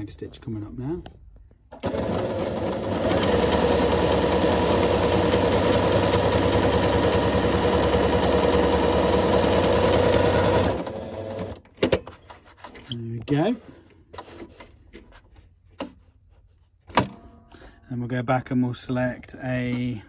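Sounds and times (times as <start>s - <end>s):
sewing machine running: 1.8s - 11.6s.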